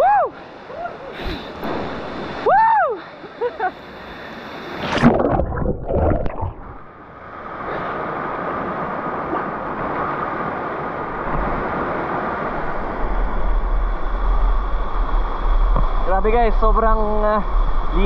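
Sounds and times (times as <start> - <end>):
water rushing over camera: 0.0 - 18.0
water splashing: 4.7 - 7.0.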